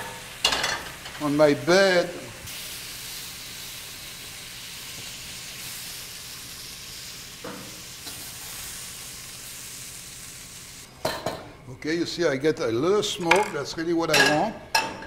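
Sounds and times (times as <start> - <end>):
food sizzling in oil: 0.0 - 10.9.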